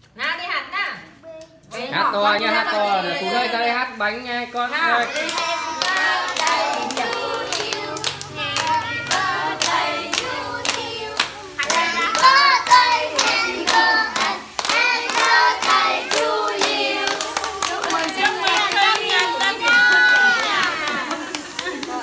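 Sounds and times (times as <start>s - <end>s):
group singing a birthday song: 1.7s - 22.0s
people clapping in time: 5.2s - 22.0s.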